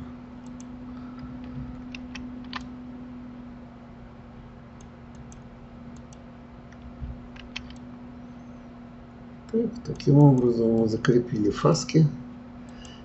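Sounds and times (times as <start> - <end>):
low electrical hum: 0.0 - 13.0
mouse and keyboard clicks: 7.4 - 7.8.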